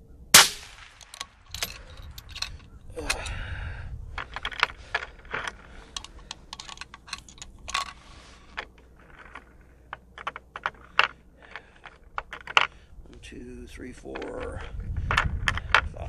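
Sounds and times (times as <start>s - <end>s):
rifle handling clicks and taps: 0.7s - 3.3s, 4.2s - 13.2s.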